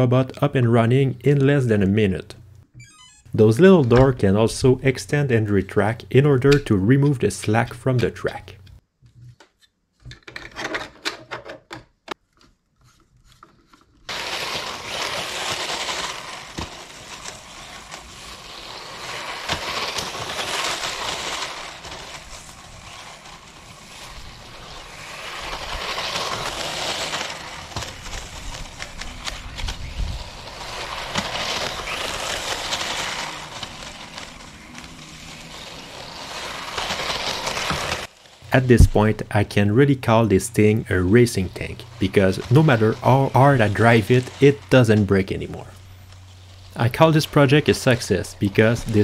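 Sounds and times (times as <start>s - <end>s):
toy tank tracks scraping snow: 3.4s - 8.8s, 12.8s - 49.0s
electric motor whirring: 14.1s - 39.1s.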